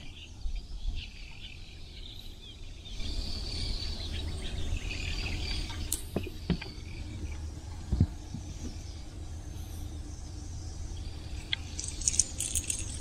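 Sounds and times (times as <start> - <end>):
birds and insects chirping: 0.0 - 13.0.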